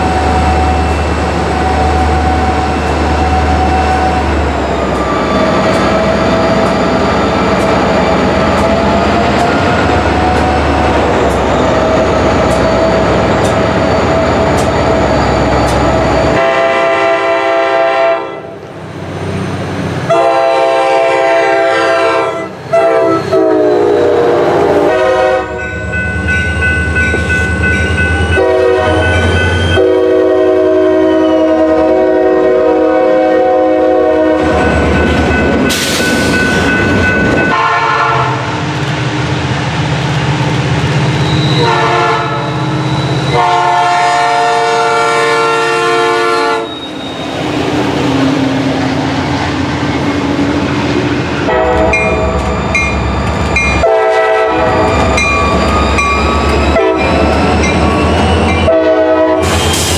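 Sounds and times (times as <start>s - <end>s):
train wheels rolling on rails: 0.0s - 16.6s, 22.5s - 32.7s, 33.5s - 59.9s
diesel locomotive engines running: 0.0s - 59.9s
locomotive air horn blasts: 16.3s - 18.6s, 20.1s - 25.6s, 28.3s - 29.1s, 29.7s - 34.6s, 37.5s - 38.6s, 41.5s - 42.6s, 43.3s - 46.8s, 51.4s - 52.4s, 53.8s - 54.9s, 56.7s - 57.2s, 58.5s - 59.9s.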